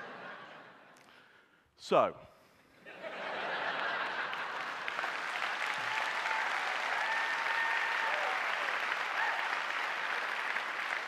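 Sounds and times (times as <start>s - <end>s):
audience applauding: 3.6s - 11.0s.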